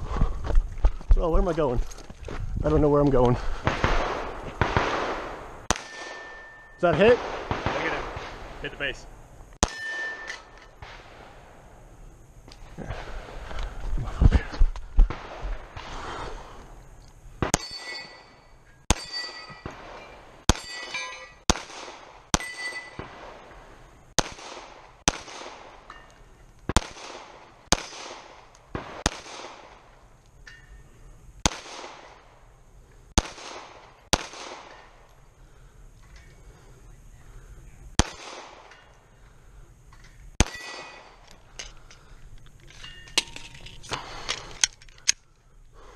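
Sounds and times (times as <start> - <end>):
pistol shots: 3.6 - 8.9, 9.6 - 11.6, 21.5 - 23.5, 24.2 - 25.8, 26.7 - 29.9, 31.4 - 32.4, 33.2 - 35.1, 38.0 - 38.9, 40.4 - 41.2
steel targets ringing when hit: 5.7 - 6.9, 9.6 - 10.6, 17.5 - 19.7, 20.5 - 21.4, 22.4 - 23.0.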